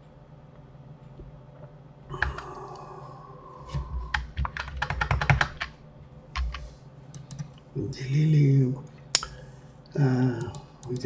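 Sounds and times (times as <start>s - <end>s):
computer keyboard typing: 2.2s - 2.5s, 3.8s - 5.8s, 6.4s - 7.6s, 10.3s - 11.0s.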